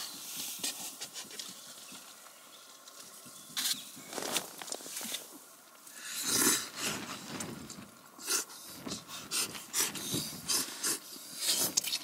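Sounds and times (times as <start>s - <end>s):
noodles being slurped: 6.0s - 7.3s, 8.2s - 12.0s.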